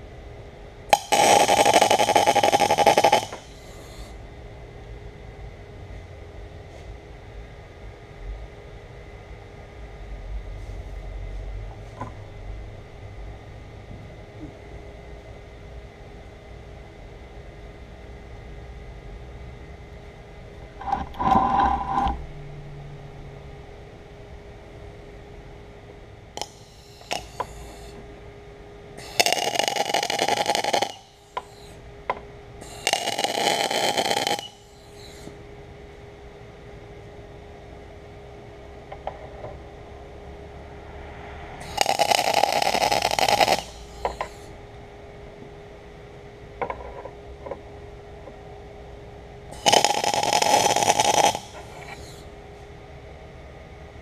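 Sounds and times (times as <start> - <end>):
steady hum: 0.0 - 54.0
arc welding: 0.9 - 4.1, 26.4 - 28.0, 29.0 - 31.8, 32.6 - 35.3, 41.6 - 44.5, 49.5 - 52.2.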